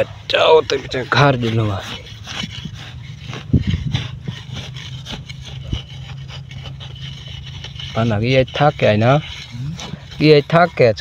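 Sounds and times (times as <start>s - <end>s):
hoe scraping dry soil: 0.0s - 11.0s
steady low hum: 0.0s - 11.0s.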